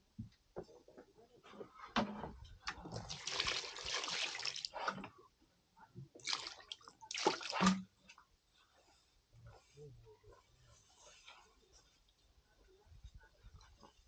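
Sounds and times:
water pouring and splashing: 0:02.9 - 0:04.9, 0:06.2 - 0:07.8.

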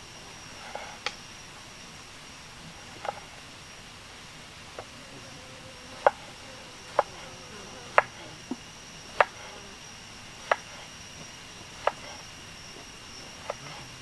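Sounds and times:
cleaver knocking on wooden board: 0:06.0 - 0:06.3.

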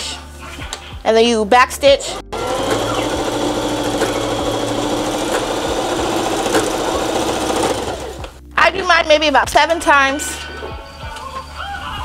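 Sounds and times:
sewing machine running: 0:02.3 - 0:08.3.

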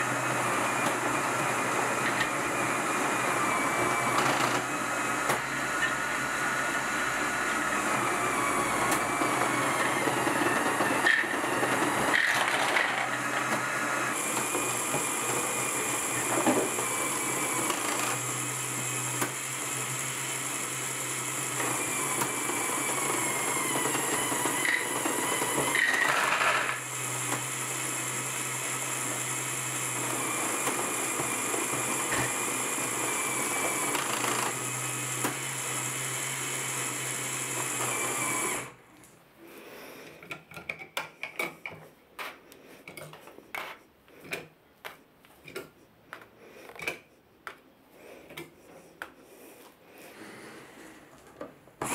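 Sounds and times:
motor whir: 0:00.0 - 0:38.8.

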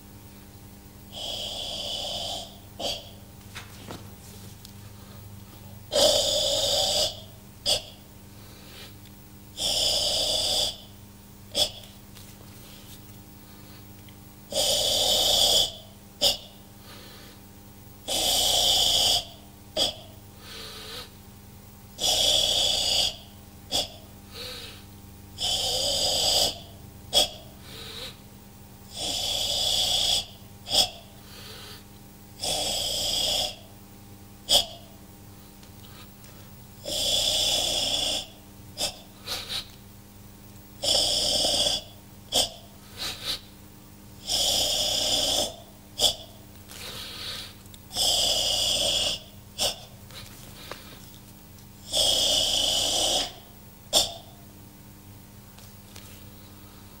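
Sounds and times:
hissing rasping exhalations: 0:01.1 - 0:03.2, 0:35.4 - 0:39.8, 0:40.8 - 0:43.6, 0:44.2 - 0:54.3.

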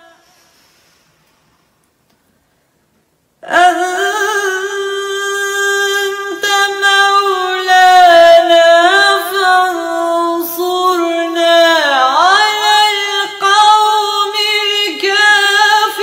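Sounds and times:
woman chanting melodically: 0:03.4 - 0:16.0.

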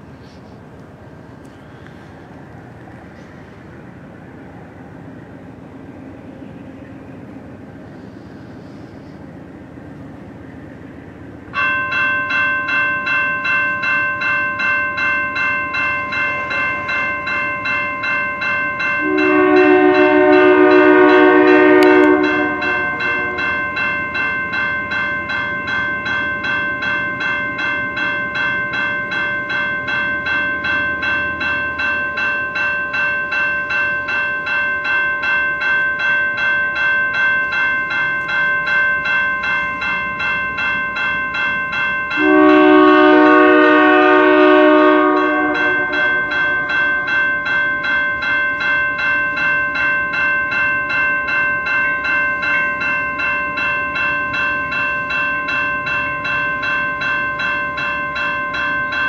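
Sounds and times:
low rumble of train: 0:00.0 - 0:59.0
railroad crossing bell ringing: 0:03.0 - 0:59.0
locomotive air horn blast: 0:19.0 - 0:23.6, 0:42.2 - 0:46.6.

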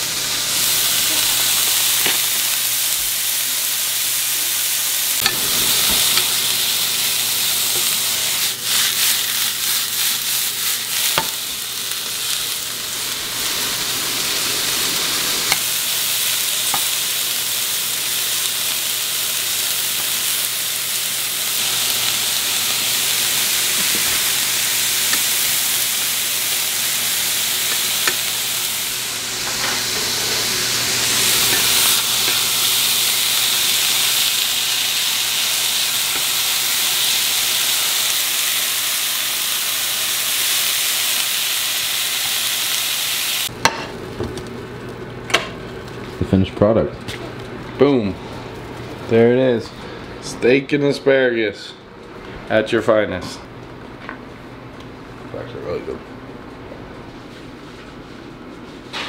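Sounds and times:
meat sizzling in frying pan: 0:00.0 - 0:45.0.

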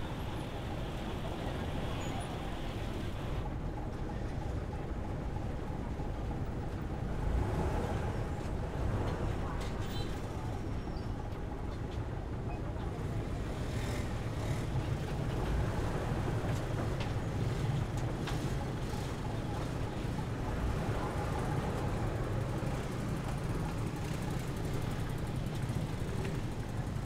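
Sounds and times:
ferry engine rumble: 0:00.0 - 0:27.0.

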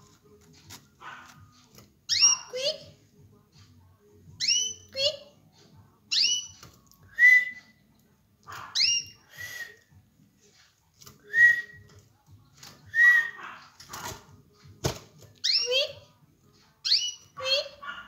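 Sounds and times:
canary chirping: 0:00.0 - 0:03.0, 0:04.3 - 0:05.4, 0:06.0 - 0:09.7, 0:15.4 - 0:16.1, 0:16.7 - 0:18.0.

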